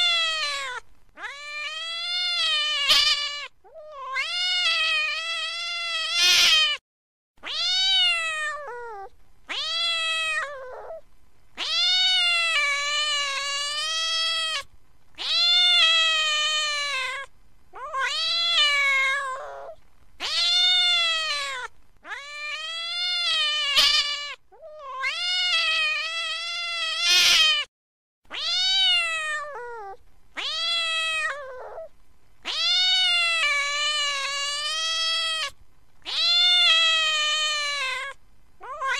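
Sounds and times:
cat yowling: 0.0s - 6.8s, 7.4s - 11.0s, 11.6s - 27.7s, 28.3s - 38.9s.

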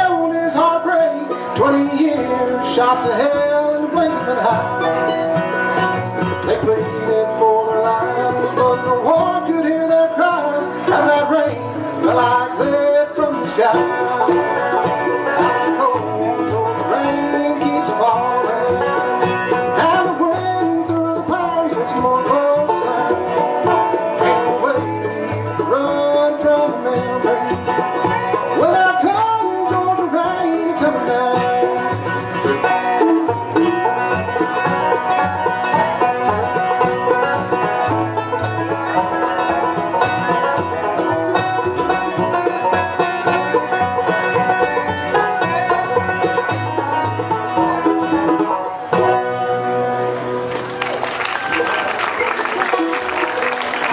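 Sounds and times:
banjo picking: 0.0s - 53.9s
bluegrass band playing: 0.0s - 53.9s.

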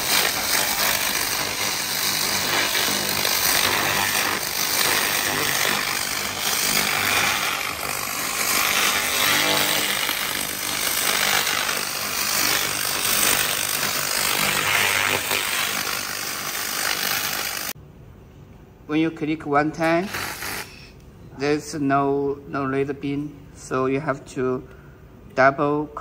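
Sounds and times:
crackle of sparks: 0.0s - 17.8s, 19.8s - 20.9s
hiss of gas jet: 19.9s - 20.9s.

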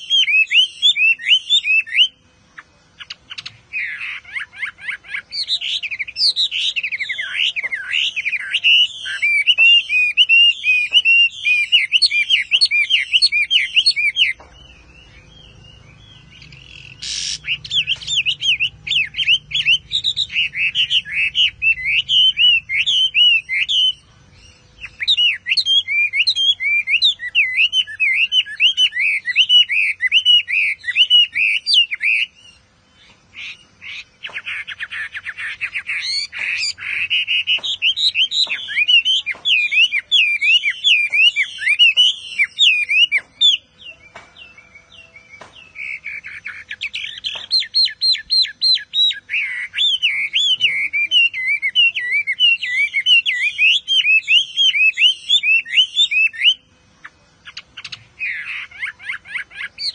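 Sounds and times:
bird singing whistled notes: 0.0s - 59.9s.

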